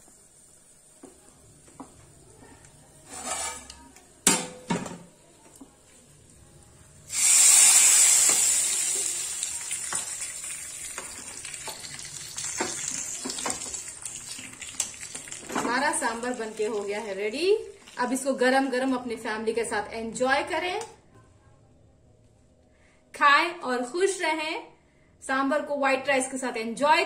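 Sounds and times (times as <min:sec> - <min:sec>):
hot oil sizzling: 0:00.0 - 0:02.0, 0:07.0 - 0:19.2.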